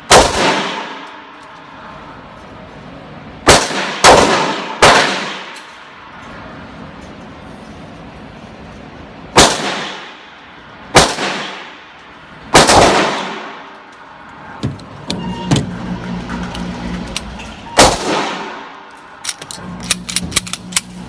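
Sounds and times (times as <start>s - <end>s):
pistol shots ringing indoors: 0.0s - 1.4s, 3.4s - 6.0s, 9.4s - 10.2s, 10.9s - 11.9s, 12.5s - 13.8s, 17.8s - 18.9s.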